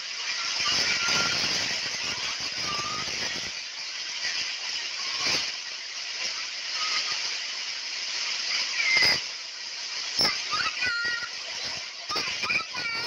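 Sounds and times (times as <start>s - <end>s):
heavy rain pouring: 0.0s - 13.0s.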